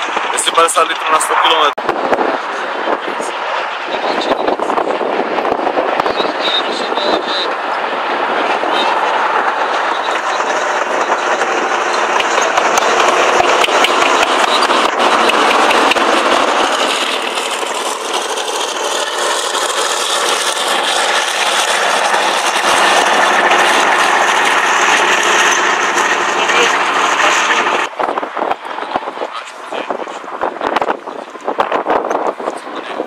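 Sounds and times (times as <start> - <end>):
tank diesel engine running: 2.3 - 33.0
clatter of steel tracks: 7.0 - 27.9.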